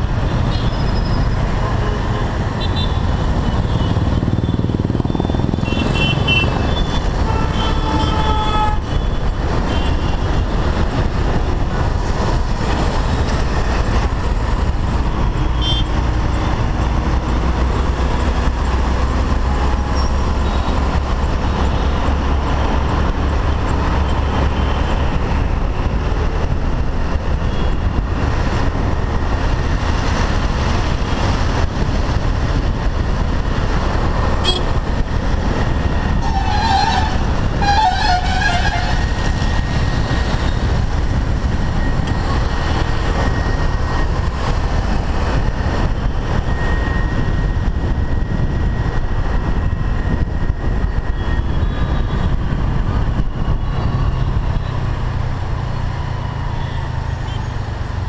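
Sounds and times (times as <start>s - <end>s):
wind rumble and road noise: 0.0s - 58.0s
vehicle horn honking: 5.6s - 9.0s, 34.4s - 34.8s, 36.2s - 39.0s.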